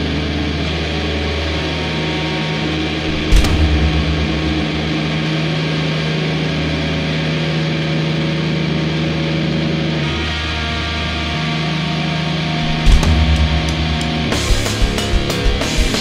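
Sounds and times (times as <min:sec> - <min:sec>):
distorted metal guitars drone: 0:00.0 - 0:16.0.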